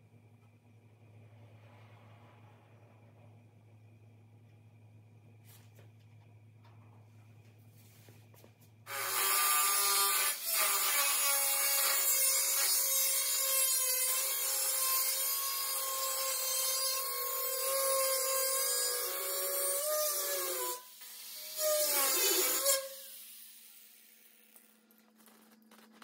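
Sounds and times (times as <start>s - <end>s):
power tool cutting sheet metal: 8.9s - 26.0s.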